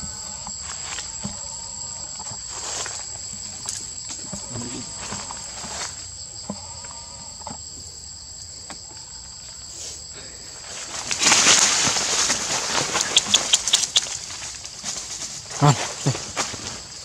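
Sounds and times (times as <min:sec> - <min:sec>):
dry leaves and branches rustling: 0:00.0 - 0:06.4, 0:10.1 - 0:17.0
high-pitched insect drone: 0:00.0 - 0:17.0.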